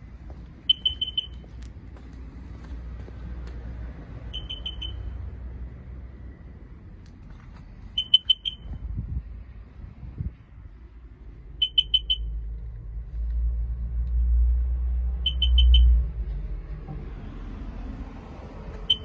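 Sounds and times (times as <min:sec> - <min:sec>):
quick high beeps: 0:00.7 - 0:01.4, 0:04.4 - 0:05.2, 0:08.0 - 0:08.8, 0:11.6 - 0:12.4, 0:15.2 - 0:16.0.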